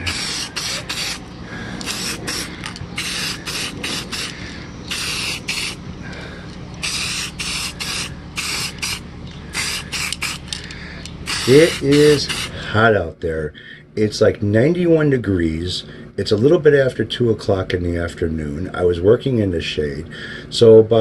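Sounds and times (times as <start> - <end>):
spray paint can hissing: 0.0 - 5.8, 6.8 - 10.6, 11.2 - 12.5.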